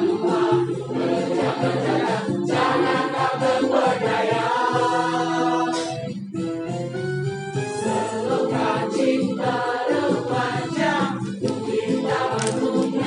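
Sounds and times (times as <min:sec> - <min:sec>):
choir singing long notes: 0:00.0 - 0:06.0, 0:07.8 - 0:13.0.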